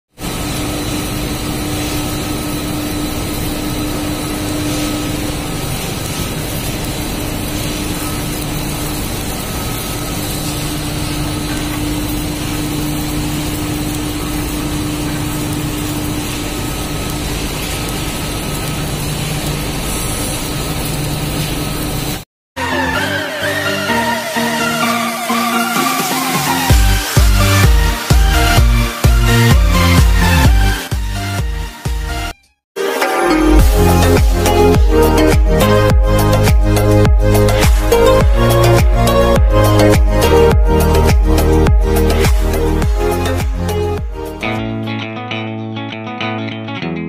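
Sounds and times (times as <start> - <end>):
printing machinery running: 0.2 - 22.2.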